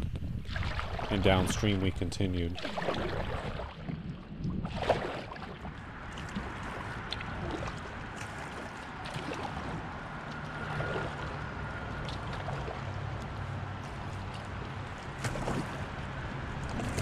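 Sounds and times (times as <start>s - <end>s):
moving river water: 0.0s - 17.0s
paddle splashing and dripping: 0.1s - 17.0s.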